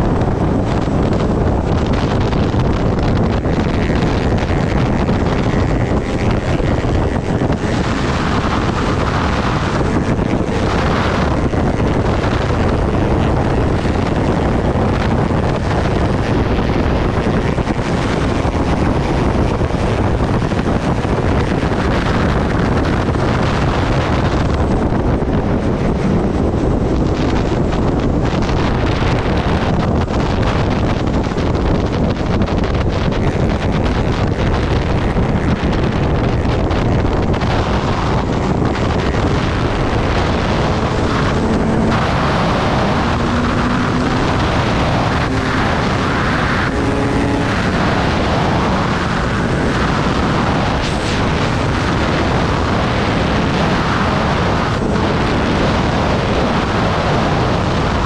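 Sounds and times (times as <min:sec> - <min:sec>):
motorcycle engine: 0:00.0 - 0:58.0
wind rushing over microphone: 0:00.0 - 0:58.0
tyres rolling on road: 0:34.7 - 0:58.0.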